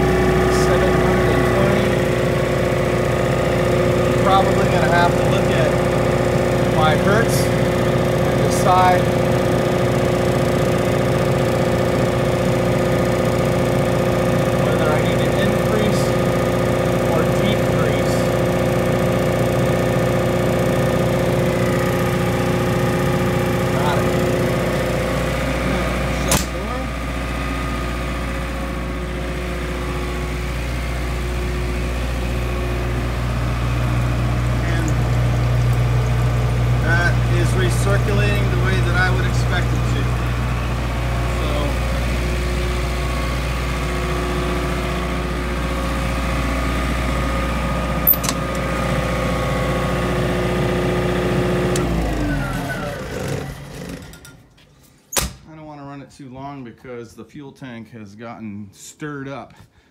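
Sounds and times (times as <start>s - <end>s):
generator winding down: 0.0s - 54.6s
diesel generator running: 0.0s - 56.4s
sharp click: 26.2s - 26.6s.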